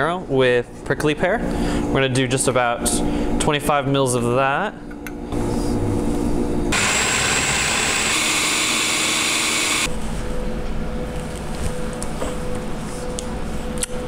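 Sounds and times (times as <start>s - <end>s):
food processor motor chopping: 6.7s - 9.9s.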